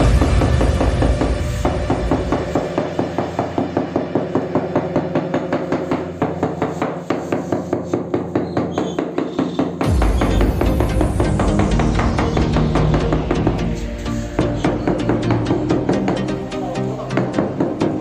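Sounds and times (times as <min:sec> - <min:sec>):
hand tool tapping floor tiles: 0:00.0 - 0:10.4, 0:12.6 - 0:18.0.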